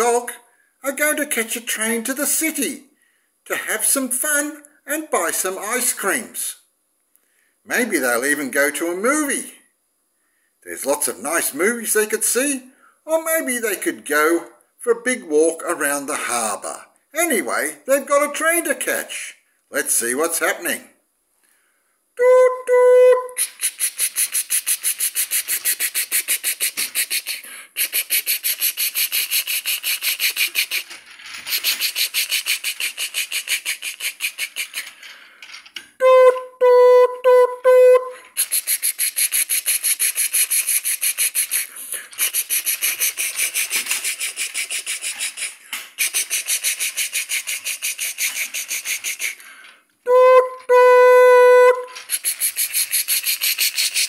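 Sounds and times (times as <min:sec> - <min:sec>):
person imitating train whistle: 0:22.2 - 0:24.3, 0:36.0 - 0:38.8, 0:50.1 - 0:52.2
person imitating train chugging: 0:22.7 - 0:30.9, 0:38.4 - 0:49.4.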